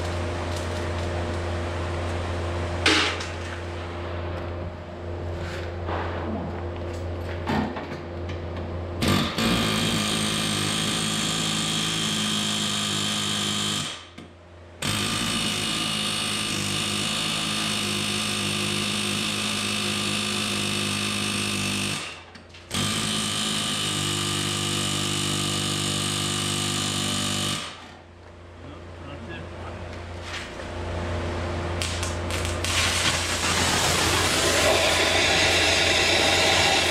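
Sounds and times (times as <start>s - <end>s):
pneumatic air hammer bursts: 9.0s - 14.1s, 14.8s - 28.0s, 32.4s - 36.9s.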